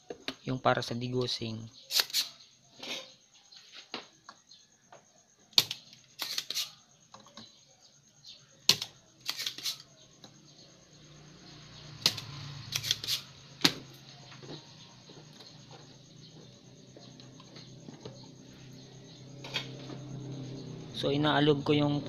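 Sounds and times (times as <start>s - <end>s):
desoldering pump snapping: 5.6s - 6.8s.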